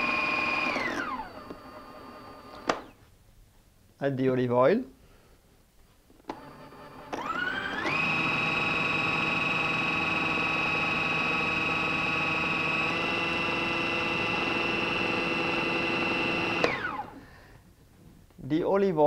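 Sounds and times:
food processor motor whining: 0.0 - 3.0, 6.3 - 17.2.

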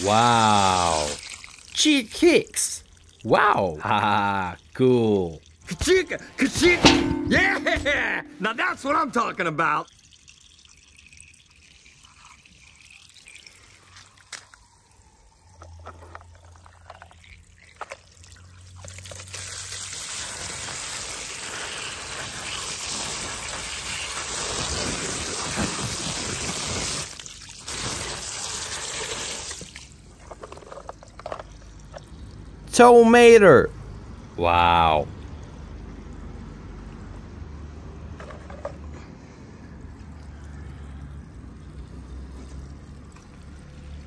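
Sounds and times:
water spraying and splashing: 0.0 - 4.8, 10.0 - 15.1, 16.6 - 30.2.

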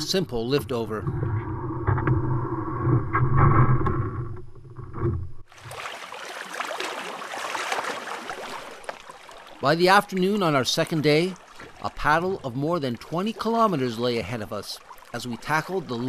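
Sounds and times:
canoe hull dragging over sticks: 0.0 - 11.9
water rushing along canoe bow: 5.4 - 16.0.

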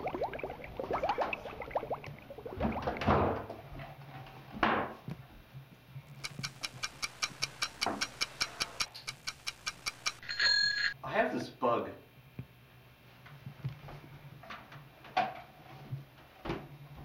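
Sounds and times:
quick even ticking: 6.1 - 10.3.

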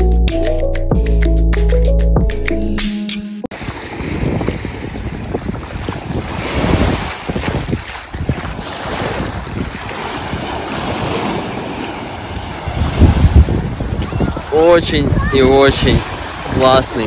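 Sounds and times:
sea waves washing onto shore: 3.5 - 17.0
wind buffeting microphone: 3.5 - 17.0.

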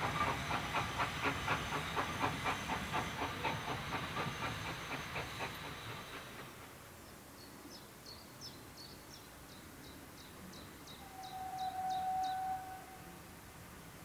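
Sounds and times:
steam locomotive whistle: 11.0 - 13.2.

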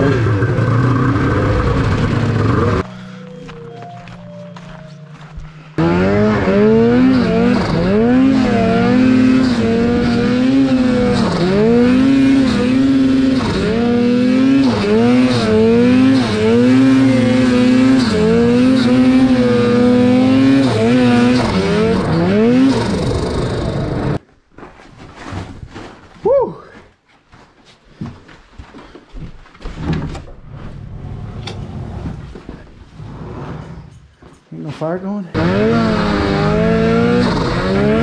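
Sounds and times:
snowmobile engine revving: 0.0 - 2.8, 5.8 - 24.2, 35.3 - 38.0.

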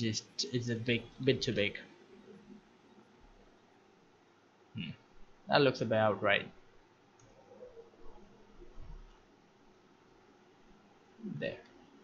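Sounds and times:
faint soft low sounds: 4.8 - 12.0.

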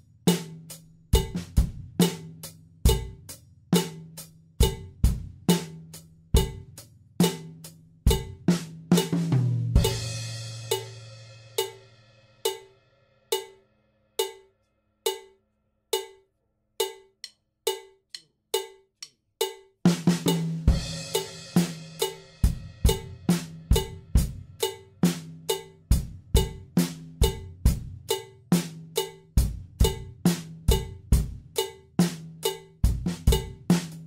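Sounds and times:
drum kit groove: 0.0 - 13.6, 14.2 - 14.5, 15.1 - 15.4, 16.0 - 16.2, 16.8 - 34.0
metronome click: 1.2 - 1.6, 11.6 - 11.9, 13.3 - 13.6, 14.2 - 20.6, 22.9 - 34.0
cymbal and drum hit ringing: 1.2 - 2.2, 2.9 - 3.2, 7.2 - 13.6, 14.2 - 14.5, 19.4 - 34.0.

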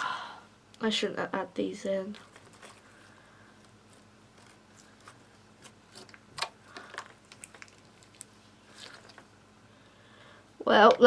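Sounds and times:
slime squelching: 3.6 - 9.4.

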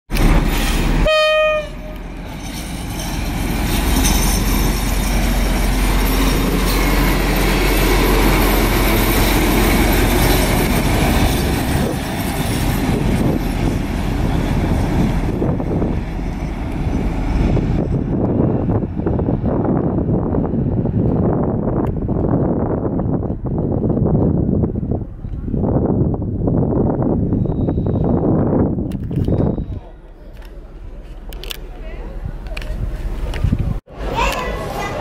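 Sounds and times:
diesel locomotive engine: 0.1 - 35.0
train wheels rolling: 0.1 - 35.0
locomotive horn blast: 1.0 - 2.1.

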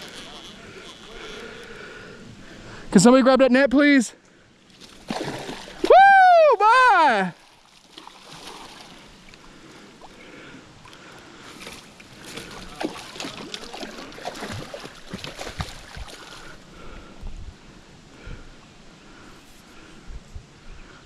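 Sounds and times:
fish thrashing and splashing: 4.7 - 5.9, 7.4 - 9.2, 11.6 - 16.6.

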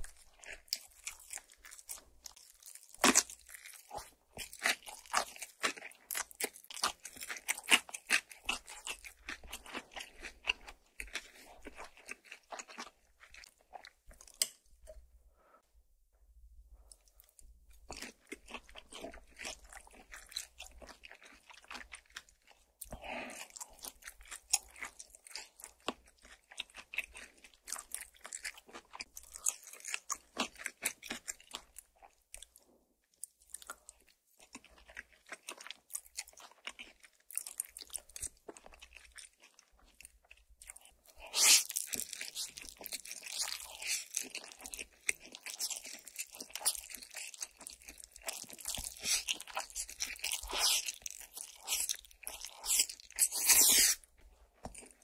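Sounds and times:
chewing and crunching food: 0.0 - 15.6, 16.8 - 55.0
noodles being slurped: 41.1 - 54.1.

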